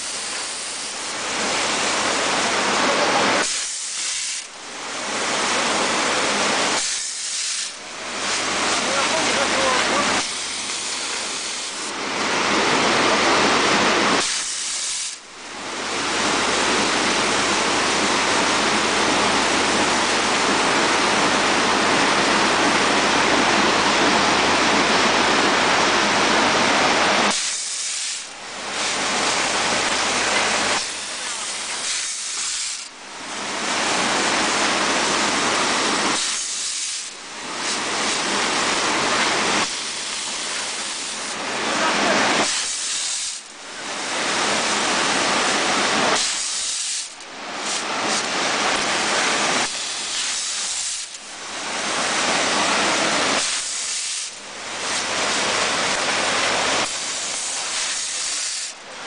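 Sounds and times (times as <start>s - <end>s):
packaging machine hissing: 0.0s - 2.3s, 2.9s - 12.0s, 13.9s - 15.3s, 27.2s - 33.0s, 33.8s - 58.9s.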